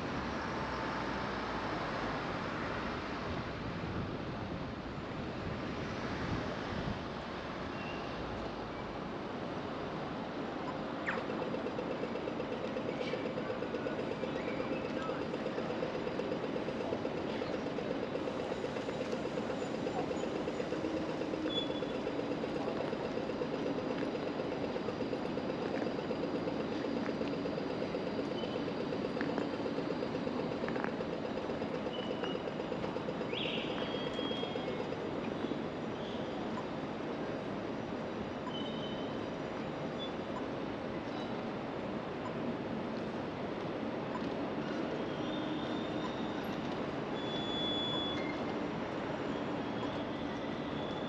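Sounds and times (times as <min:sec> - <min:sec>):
car driving on road: 0:00.0 - 0:05.9
short high squeaks: 0:47.2 - 0:48.5.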